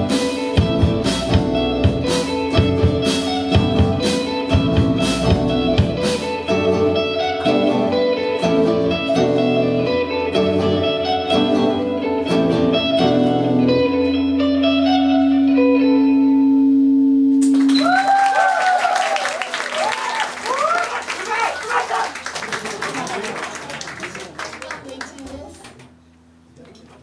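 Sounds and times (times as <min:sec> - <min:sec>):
rock band playing: 0:00.0 - 0:18.1
audience applause: 0:17.4 - 0:25.9.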